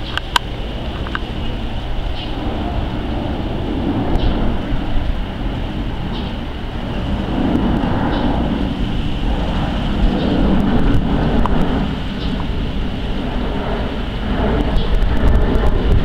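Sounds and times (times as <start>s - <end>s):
jet engines passing overhead: 0.0s - 16.0s.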